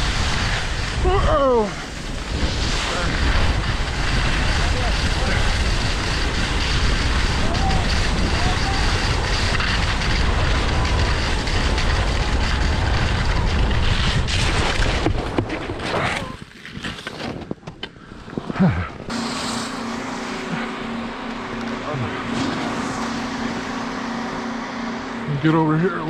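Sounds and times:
steady low hum: 0:00.0 - 0:15.1, 0:17.8 - 0:26.0
wind buffeting microphone: 0:00.0 - 0:15.5
skis scraping over snow: 0:00.0 - 0:18.5, 0:19.1 - 0:26.0.

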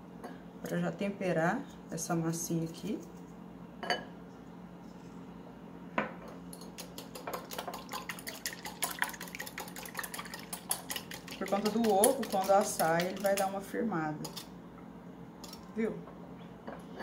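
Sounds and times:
whisk clicking on glass bowl: 0:06.8 - 0:13.6
liquid sloshing: 0:06.8 - 0:14.4.

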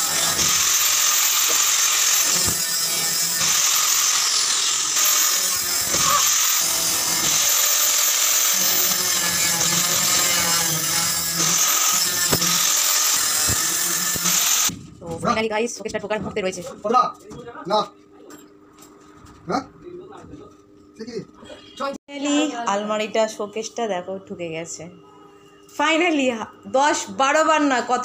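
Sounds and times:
angle grinder cutting metal: 0:00.0 - 0:14.7.

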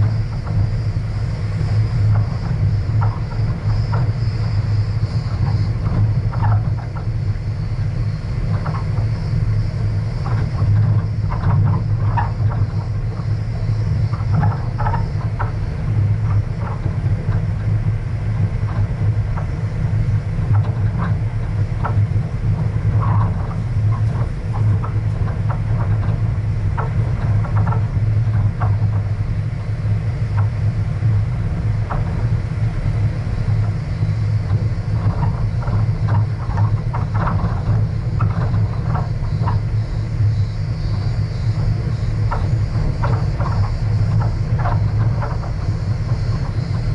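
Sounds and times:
small clicks and rattles: 0:20.4 - 0:29.6, 0:33.5 - 0:46.9.

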